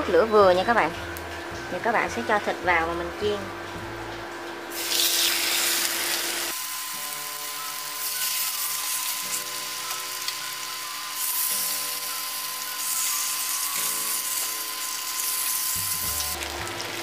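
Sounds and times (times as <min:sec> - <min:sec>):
soft background music: 0:00.0 - 0:17.0
meat sizzling in a frying pan: 0:04.7 - 0:17.0.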